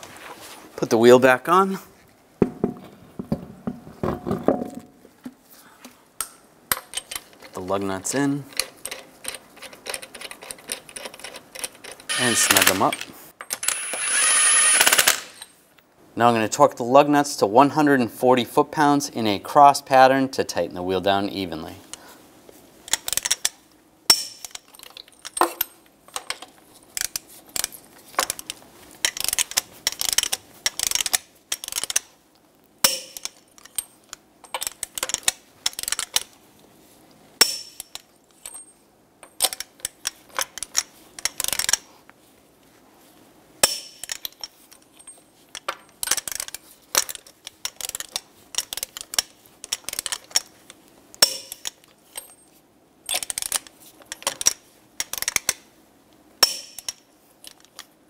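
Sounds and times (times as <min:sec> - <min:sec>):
wrench ratchet clicks: 0:08.9 - 0:15.5, 0:28.3 - 0:32.0, 0:53.1 - 0:55.6.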